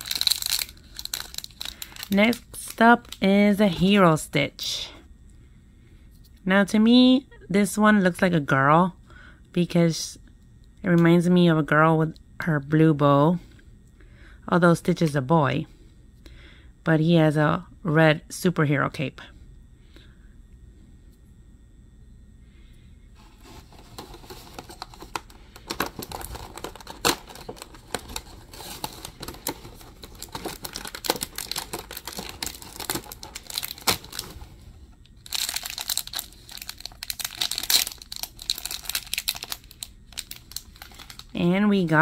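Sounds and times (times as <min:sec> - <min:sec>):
foil crinkling and tearing: 0:00.0 - 0:03.2, 0:23.4 - 0:34.6, 0:35.2 - 0:41.4.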